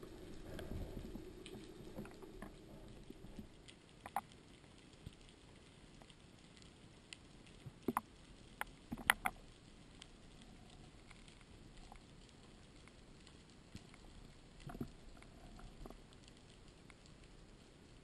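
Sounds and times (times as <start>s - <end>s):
faint underwater hiss: 0.0s - 4.2s
underwater clicks and ticks: 0.0s - 18.0s.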